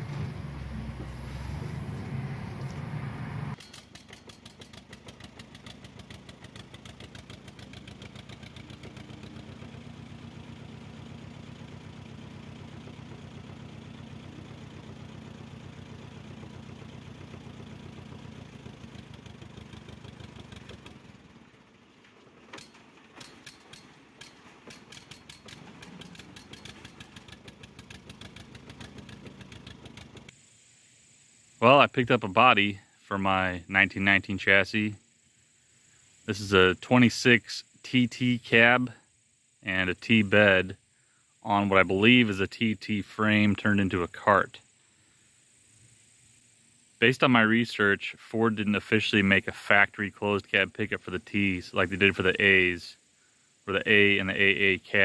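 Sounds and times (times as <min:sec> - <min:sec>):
tractor engine running: 0:00.0 - 0:30.5.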